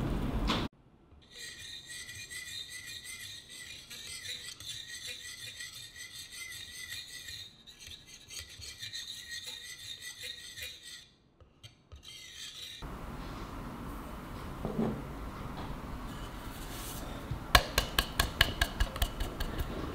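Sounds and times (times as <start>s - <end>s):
whisk scraping ceramic bowl: 1.3s - 12.9s, 16.1s - 19.9s.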